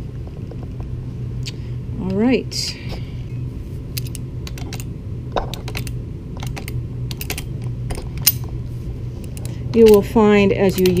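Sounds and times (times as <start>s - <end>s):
tools clicking on metal bracket: 9.2s - 11.0s.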